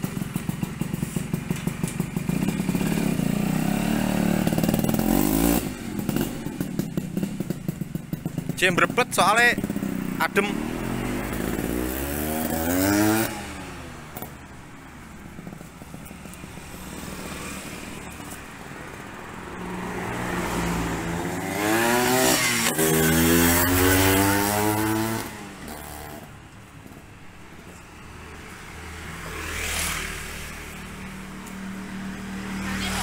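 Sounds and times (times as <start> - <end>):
two-stroke moped passing: 0.0 - 33.0
faint vehicle passing: 9.4 - 26.3, 26.9 - 33.0.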